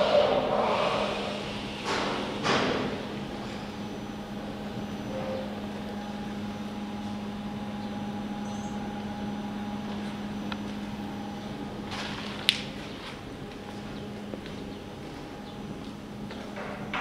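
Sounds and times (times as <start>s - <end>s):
high whine: 0.0s - 17.0s
machinery electrical hum: 0.0s - 17.0s.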